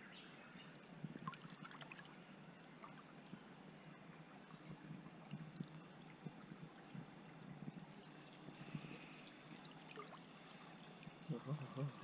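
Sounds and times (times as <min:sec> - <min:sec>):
stream water trickling: 0:00.0 - 0:12.0
small water splashes: 0:01.2 - 0:02.2, 0:09.4 - 0:11.5.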